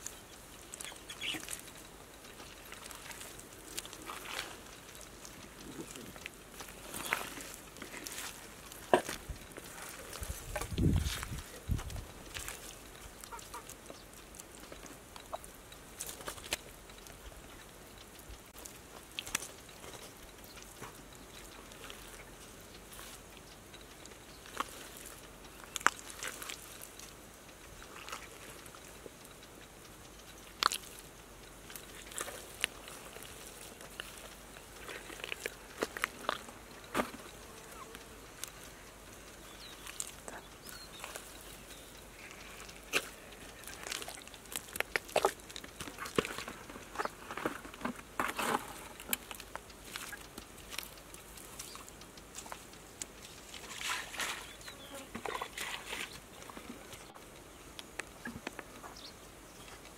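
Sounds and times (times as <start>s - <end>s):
dried mud cracking and crunching: 0.0s - 59.9s
hands scooping wet mud: 2.4s - 14.6s, 24.4s - 27.0s, 27.8s - 28.8s, 31.7s - 36.4s, 39.7s - 57.1s.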